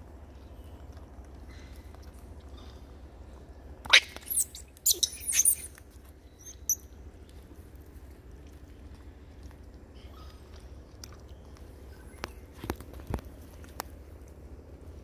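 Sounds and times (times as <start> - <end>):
macaques squealing: 3.9 - 5.8.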